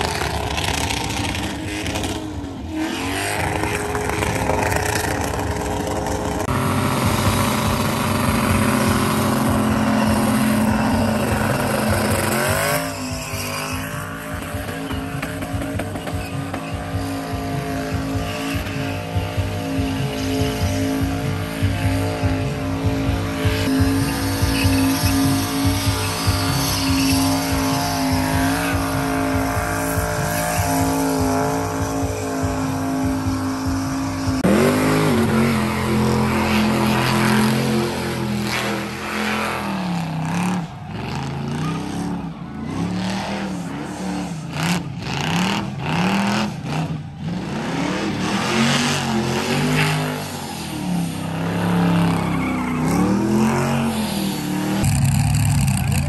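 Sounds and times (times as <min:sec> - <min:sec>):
truck engine revving: 0:00.0 - 0:56.0
tyres squealing: 0:23.7 - 0:32.3, 0:51.4 - 0:54.7.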